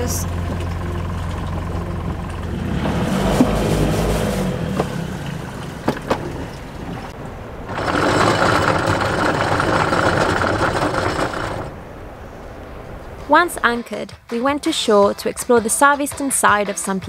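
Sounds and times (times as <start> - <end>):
diesel engine running at low revs: 0.0 - 11.9
anchor chain rattling out: 7.7 - 11.8.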